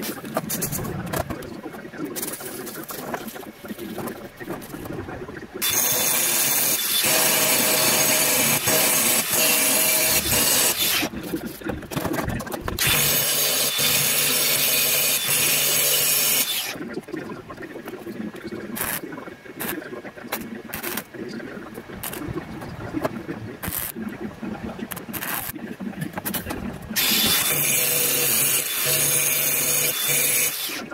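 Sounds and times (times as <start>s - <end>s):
welder arc crackling: 18.8s - 30.9s.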